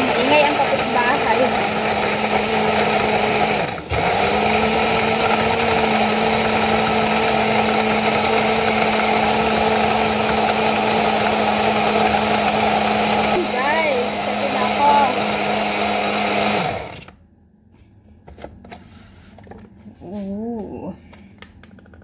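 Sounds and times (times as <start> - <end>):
blender motor running: 0.0 - 17.2.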